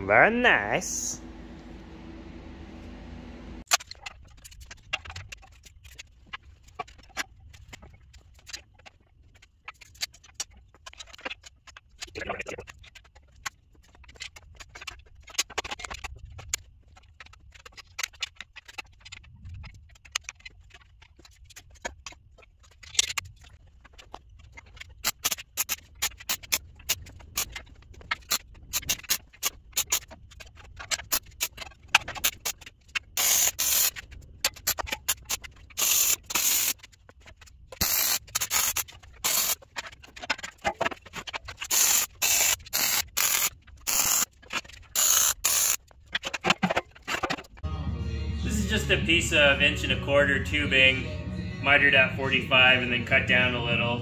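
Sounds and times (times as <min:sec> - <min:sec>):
steel tubing and clamps clicking: 0:22.7 - 0:47.6.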